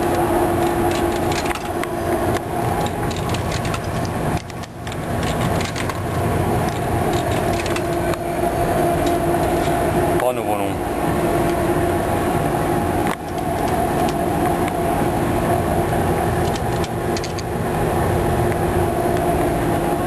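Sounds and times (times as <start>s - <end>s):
constant low hum: 0.0s - 20.0s
rumbling background noise: 0.0s - 20.0s
payphone handset and keys clicking: 2.8s - 6.0s, 16.4s - 17.5s.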